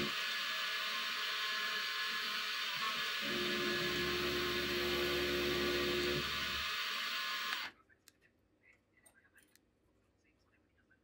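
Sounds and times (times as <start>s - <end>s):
milling machine cutting metal: 0.0s - 7.7s.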